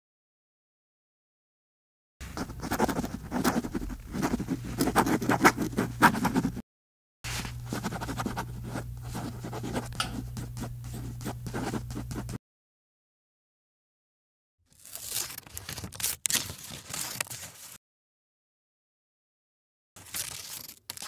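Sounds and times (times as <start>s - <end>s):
pencil scratching on paper: 2.2s - 6.6s, 7.5s - 12.4s.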